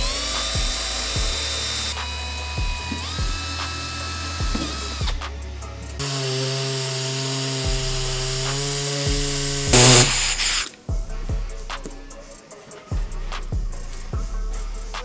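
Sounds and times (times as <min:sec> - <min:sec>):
cordless drill whining: 0:00.0 - 0:05.2, 0:06.0 - 0:10.7
background music with a beat: 0:00.0 - 0:06.0, 0:07.6 - 0:15.0
air die grinder running: 0:06.0 - 0:10.7.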